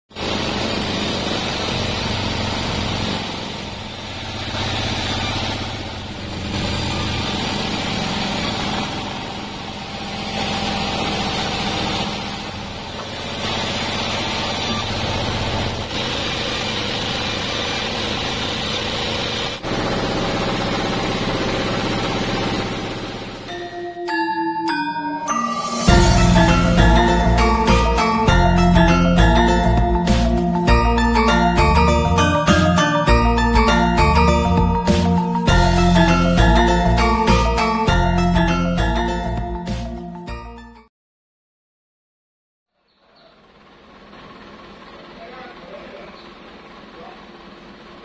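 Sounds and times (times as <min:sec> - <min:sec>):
band saw cutting logs: 0:00.2 - 0:23.6.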